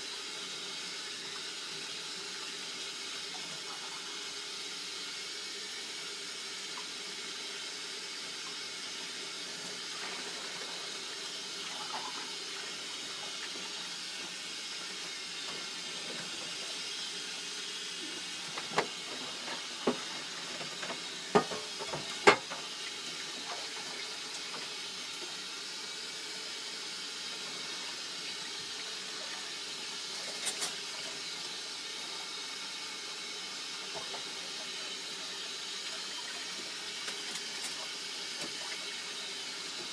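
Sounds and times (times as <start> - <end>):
tap running into steel sink: 18.6 - 22.7.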